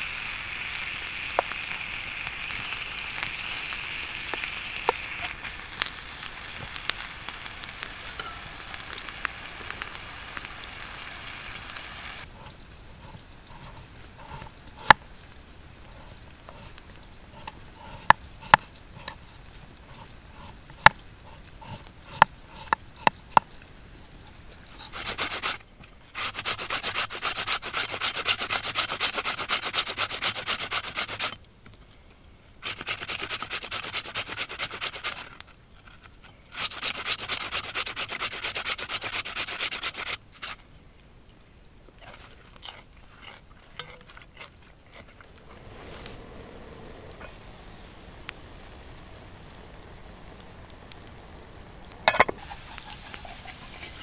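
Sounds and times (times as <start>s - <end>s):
potato rasping on a metal grater: 12.4s - 14.9s, 15.9s - 19.2s, 19.9s - 23.1s, 24.7s - 25.6s, 26.2s - 31.4s, 32.6s - 40.6s, 52.4s - 54.0s.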